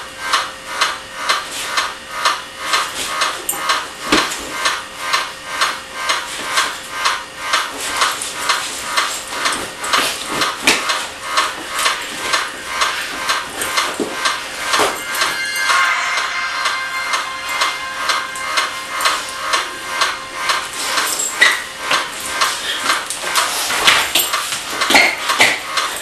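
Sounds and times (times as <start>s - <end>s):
dance music over a speaker: 7.8s - 15.4s.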